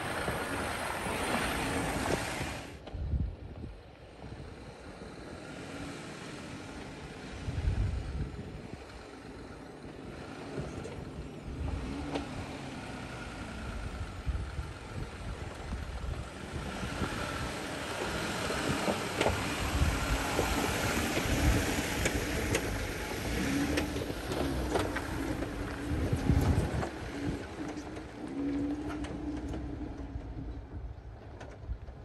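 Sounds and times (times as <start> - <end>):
engine and drivetrain rumble: 0.0 - 32.0
stones clicking under tyres: 15.4 - 30.6.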